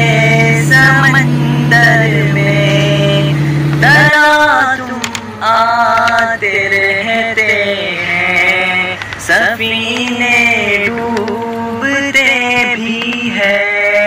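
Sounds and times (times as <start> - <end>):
person singing devotional song: 0.0 - 14.0.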